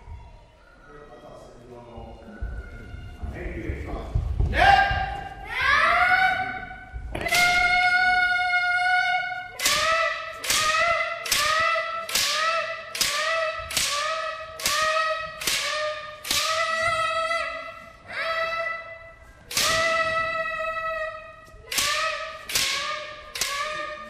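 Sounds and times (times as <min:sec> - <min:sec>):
child shouting: 0:04.6 - 0:24.0
bamboo swords cracking: 0:09.5 - 0:16.9, 0:19.5 - 0:20.4, 0:21.6 - 0:24.0.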